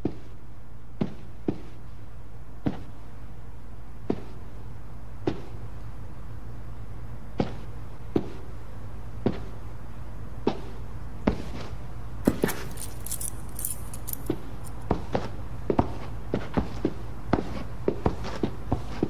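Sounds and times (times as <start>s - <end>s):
steady low hum: 0.0s - 19.0s
keys jingling: 12.3s - 14.9s.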